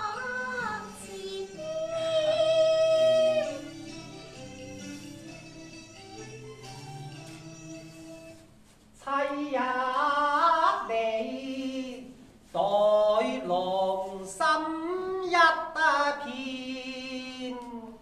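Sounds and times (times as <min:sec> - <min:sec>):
opera singing: 0:00.0 - 0:03.8, 0:09.0 - 0:18.0.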